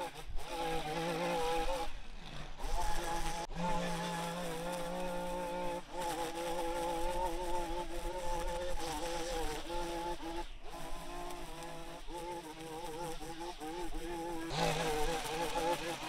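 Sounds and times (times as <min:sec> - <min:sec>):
small gasoline engine running: 0:13.4 - 0:16.0.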